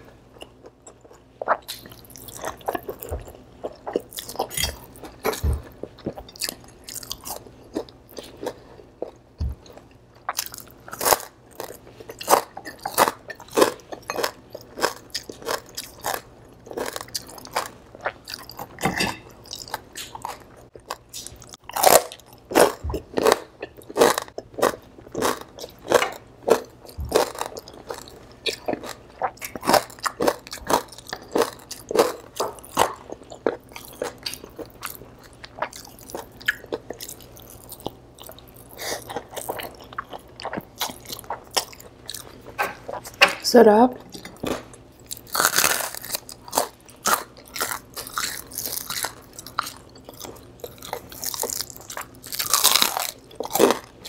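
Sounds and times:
crunching of crispy pork: 19.4s - 43.0s, 44.5s - 54.0s.

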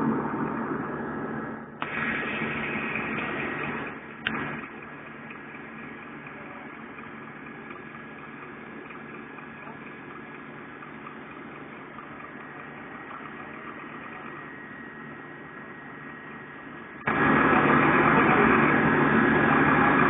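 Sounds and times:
low diesel engine hum: 0.0s - 20.0s
rushing hiss: 1.8s - 4.0s
sharp clicks: 3.0s - 5.4s.

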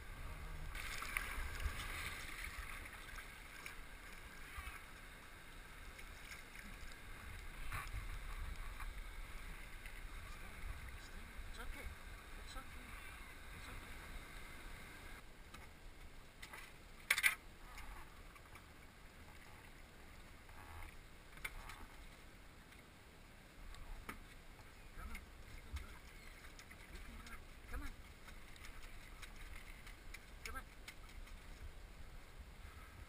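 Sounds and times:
paddle splashes and drips: 0.7s - 11.1s, 24.0s - 31.7s.

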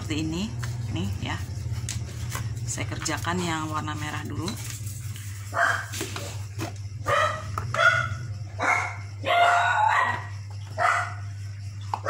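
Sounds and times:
steady low hum: 0.0s - 12.0s
dog barking: 5.5s - 6.0s, 7.0s - 11.3s.

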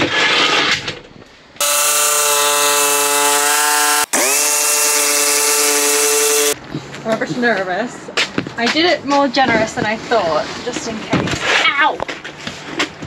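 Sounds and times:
short scraping noise: 0.0s - 1.0s
jigsaw cutting plastic sheet: 1.6s - 6.6s.

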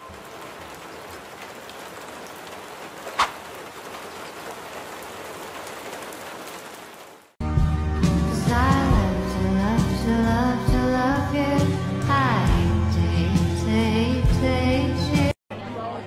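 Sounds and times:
rain-like hiss: 0.0s - 7.4s.

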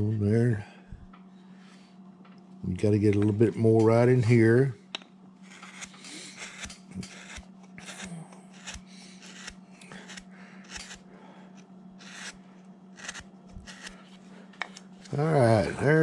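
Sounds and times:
carving gouge scraping wood: 5.4s - 11.0s, 12.0s - 15.2s.

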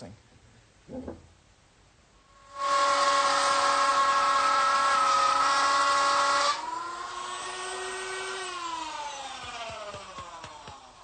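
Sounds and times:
router high whine: 6.1s - 11.0s.

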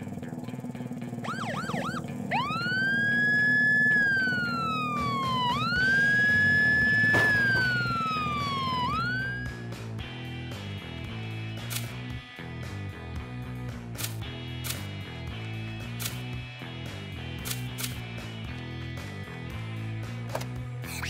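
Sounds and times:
police siren yelping and wailing: 1.2s - 9.7s.

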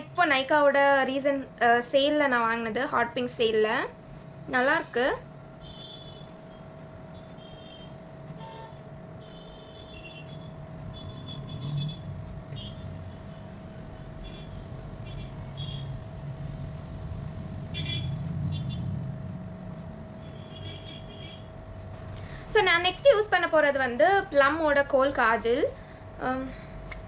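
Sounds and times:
steady hum: 0.0s - 27.0s
passing vehicles rumbling: 5.3s - 22.8s.

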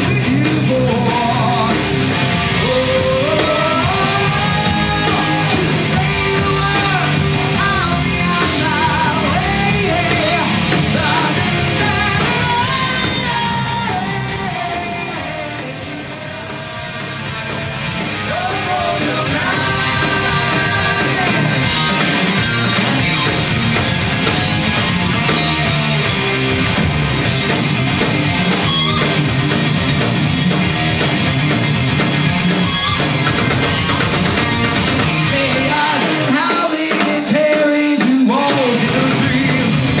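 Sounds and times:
sung vocals: 0.0s - 23.3s, 35.1s - 40.0s
distorted electric guitar: 0.0s - 40.0s
drum kit: 0.0s - 40.0s
electric bass: 0.0s - 40.0s.

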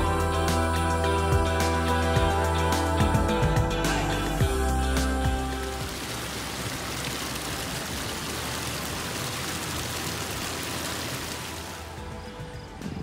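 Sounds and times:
water spilling over weir: 4.2s - 12.2s.

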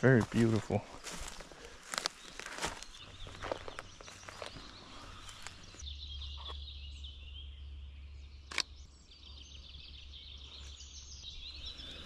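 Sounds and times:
songbirds twittering: 0.0s - 12.0s
sharp click: 8.5s - 8.7s.

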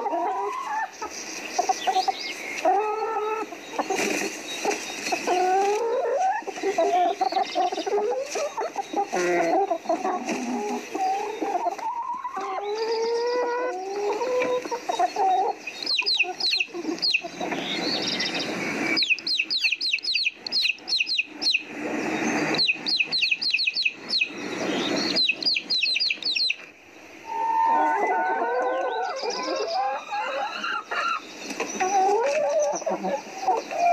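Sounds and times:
chickens clucking: 0.0s - 33.9s
high falling chirps: 14.7s - 32.9s.

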